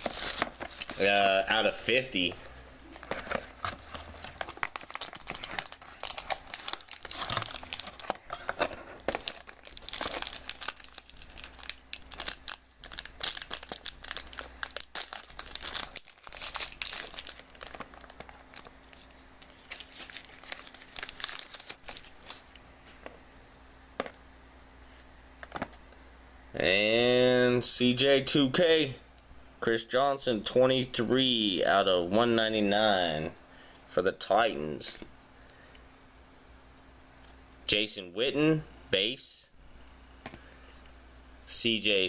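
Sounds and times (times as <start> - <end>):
plastic wrapping crinkling and tearing: 0.0 - 1.4, 2.8 - 22.5.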